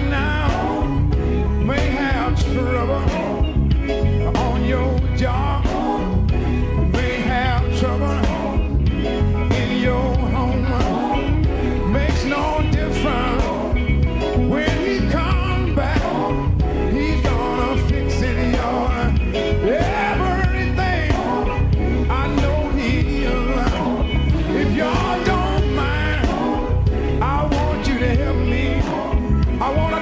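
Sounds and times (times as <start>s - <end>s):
band with electric guitar and bass: 0.0s - 30.0s
male voices singing gospel: 0.0s - 30.0s.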